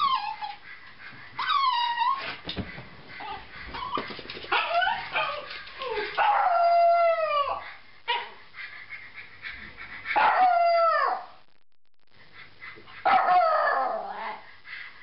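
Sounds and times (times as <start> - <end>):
dog howling: 3.2 - 7.6, 13.0 - 14.5.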